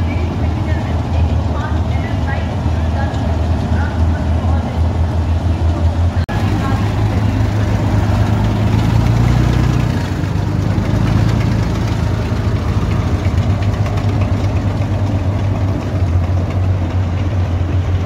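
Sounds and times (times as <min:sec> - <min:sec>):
diesel engines idling: 0:00.0 - 0:18.0.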